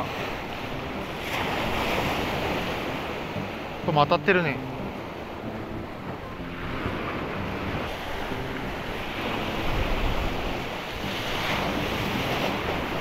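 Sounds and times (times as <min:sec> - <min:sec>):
surf washing onto shore: 0:00.0 - 0:13.0
wind buffeting microphone: 0:04.6 - 0:13.0.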